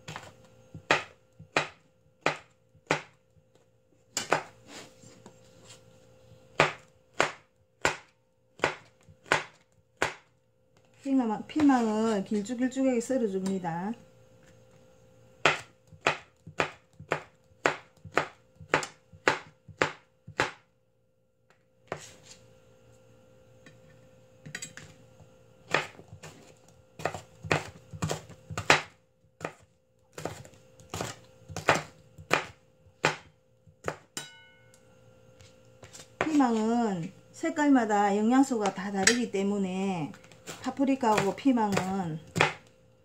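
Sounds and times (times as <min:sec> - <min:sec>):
knife chopping on cutting board: 0:00.0 - 0:03.2, 0:04.2 - 0:04.6, 0:06.5 - 0:10.3, 0:15.4 - 0:20.6, 0:25.7 - 0:34.4, 0:40.2 - 0:42.7.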